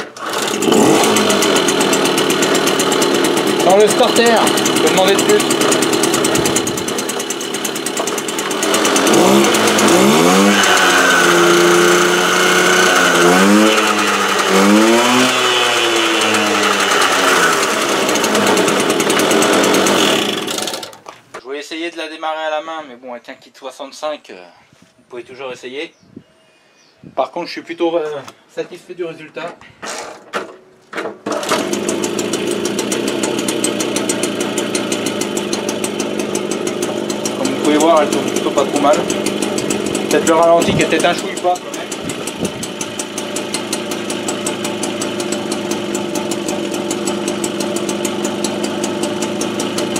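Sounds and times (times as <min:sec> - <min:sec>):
moped engine revving: 0:00.0 - 0:21.1, 0:31.2 - 0:49.9.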